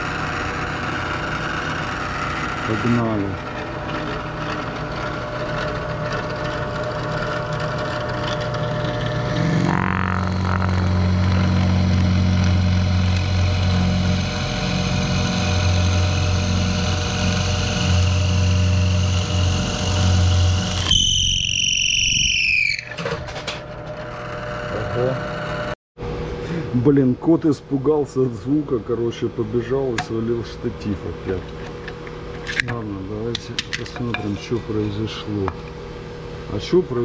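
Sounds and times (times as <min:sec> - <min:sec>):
drill press motor humming: 0:00.0 - 0:25.8
motor winding down whine: 0:00.0 - 0:25.8
loud low drone: 0:08.5 - 0:20.9.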